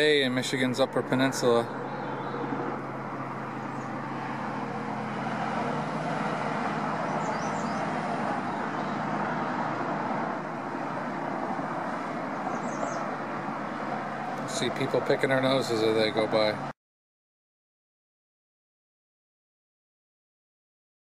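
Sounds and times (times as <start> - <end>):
highway traffic rushing: 0.0 - 16.8.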